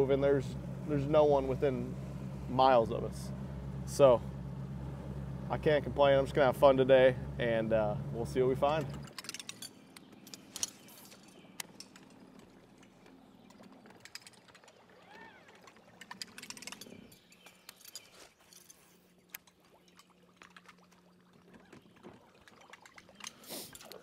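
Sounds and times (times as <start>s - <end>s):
steady low hum: 0.0s - 9.2s.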